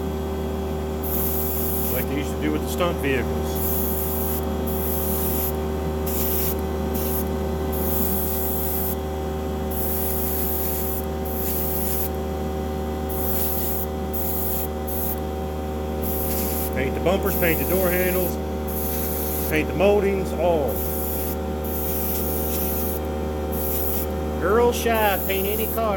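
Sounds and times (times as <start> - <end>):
steady motor hum: 0.0 - 25.9
airbrush spraying in hissing bursts: 1.0 - 2.1, 3.6 - 9.0, 9.7 - 12.2, 13.1 - 15.2, 16.0 - 19.6, 20.7 - 24.1, 24.9 - 25.9.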